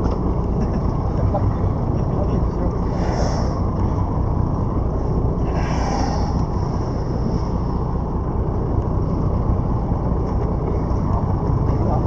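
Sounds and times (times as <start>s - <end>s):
boat engine rumbling: 0.0s - 12.0s.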